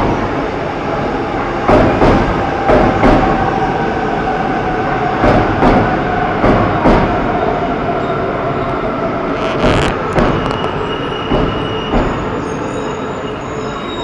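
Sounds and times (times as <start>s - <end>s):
train wheels rumbling on rail: 0.0s - 14.0s
sharp knocks: 5.2s - 7.2s, 9.4s - 12.3s
high brake squeal: 8.0s - 14.0s.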